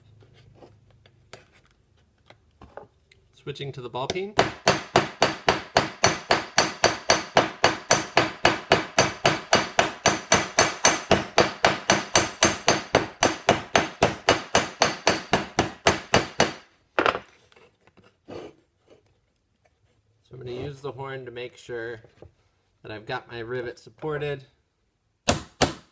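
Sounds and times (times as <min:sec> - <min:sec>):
hammer striking metal rivet: 0:04.1 - 0:17.2.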